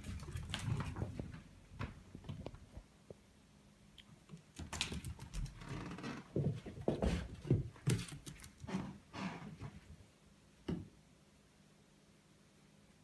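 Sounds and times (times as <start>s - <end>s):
dog claws clicking on hardwood floor: 6.4s - 8.7s.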